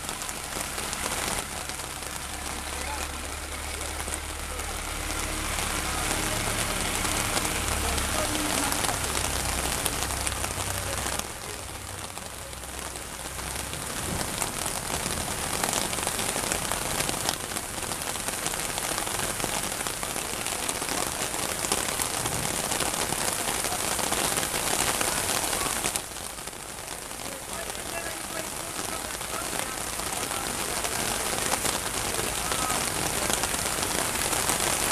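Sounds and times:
heavy rain pouring: 0.0s - 34.9s.

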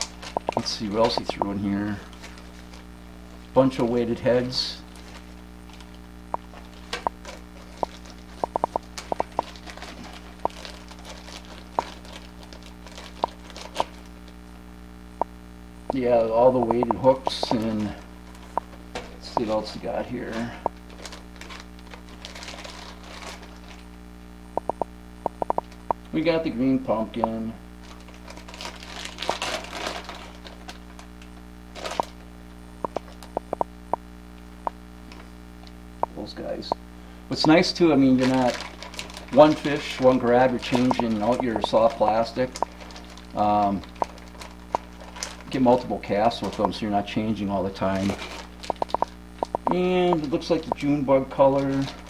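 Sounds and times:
sharp clicks: 0.0s - 1.6s, 7.8s - 9.6s, 16.6s - 17.7s, 24.6s - 26.1s, 32.8s - 34.0s, 48.7s - 50.8s
plastic packets crinkling: 0.0s - 4.0s, 4.9s - 14.4s, 16.1s - 24.0s, 27.8s - 32.3s, 32.9s - 33.4s, 37.4s - 52.0s
steady electrical hum: 0.0s - 52.0s.

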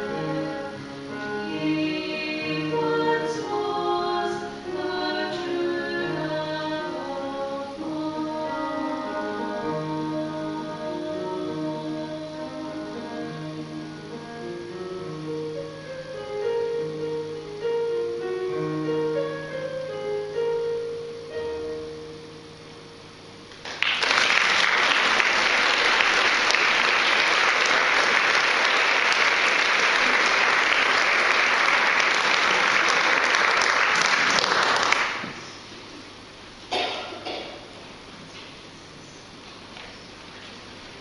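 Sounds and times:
keyboard notes: 0.0s - 23.5s
audience applauding: 23.5s - 35.4s.

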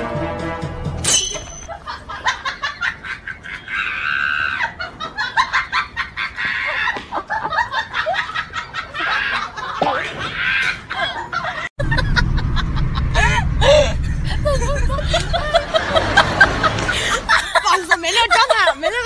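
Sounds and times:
background music: 0.0s - 1.6s.

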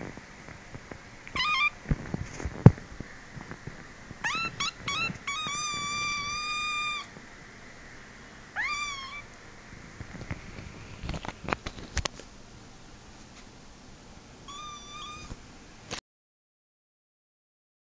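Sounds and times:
kitten meowing: 1.3s - 1.8s, 4.2s - 7.1s, 8.6s - 9.3s, 14.5s - 15.4s.

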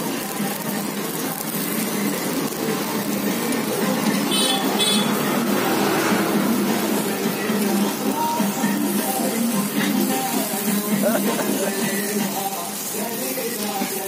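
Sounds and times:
street noise low hum: 0.0s - 14.0s
high-pitched horn beeps: 4.3s - 5.4s.

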